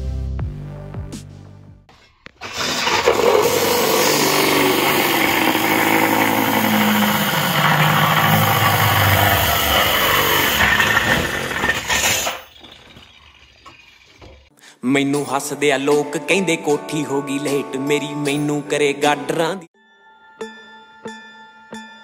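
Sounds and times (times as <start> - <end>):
power tool motor under load: 2.4 - 14.4.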